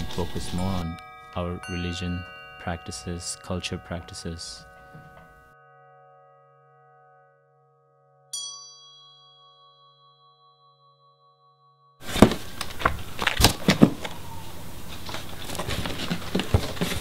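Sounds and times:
struck metal bell ringing: 0:00.0 - 0:12.1
rustling in cardboard box: 0:14.9 - 0:17.0.

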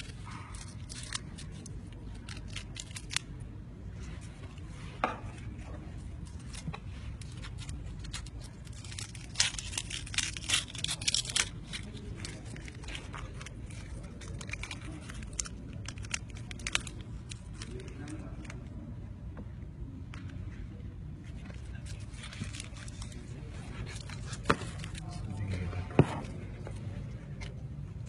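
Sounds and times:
onion skins crackling: 0:00.0 - 0:03.4, 0:06.2 - 0:18.6.

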